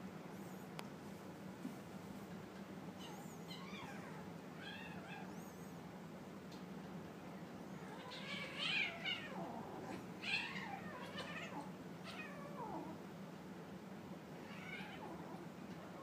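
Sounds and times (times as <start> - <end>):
kittens mewing: 7.8 - 13.0.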